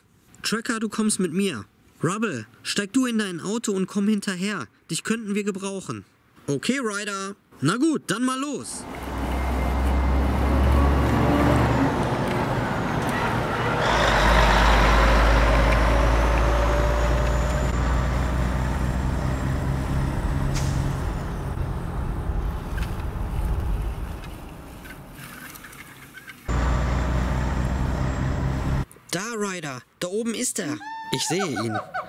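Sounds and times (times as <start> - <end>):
truck engine rumble: 8.8 - 25.2, 26.5 - 28.9.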